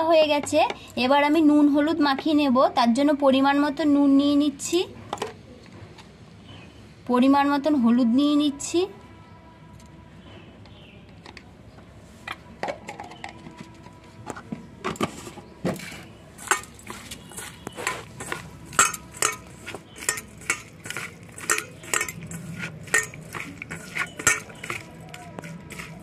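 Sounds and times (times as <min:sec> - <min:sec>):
metal clinking against bowl: 0:18.2 - 0:26.0.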